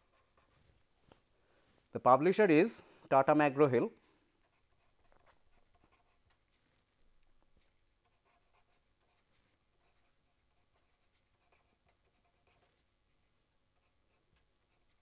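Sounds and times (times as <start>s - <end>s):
marker pen scratching on paper: 0.0s - 0.9s, 4.0s - 13.0s, 13.7s - 15.0s.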